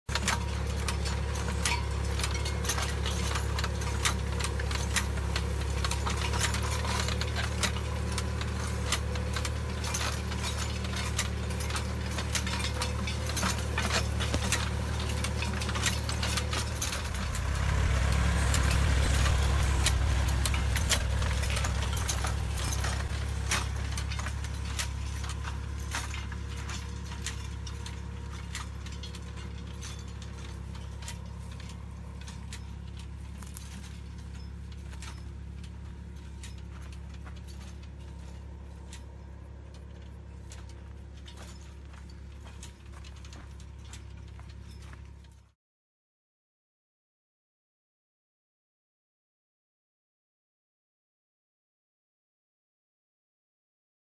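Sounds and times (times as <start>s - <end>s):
tractor engine running: 0.1s - 45.5s
hoe clicking and rattling: 2.0s - 45.0s.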